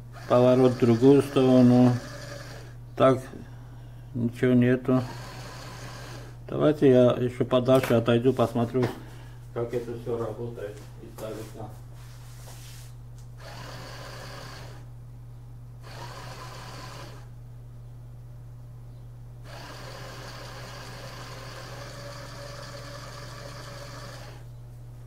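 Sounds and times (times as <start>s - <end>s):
small motors whirring: 0.1s - 2.8s, 5.0s - 6.4s, 13.4s - 14.9s, 15.8s - 17.3s, 19.4s - 24.5s.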